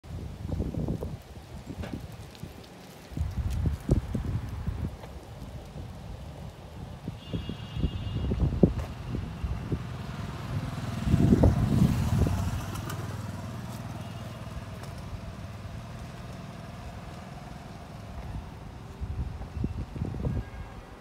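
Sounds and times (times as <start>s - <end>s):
vehicle engine humming: 4.2s - 20.2s.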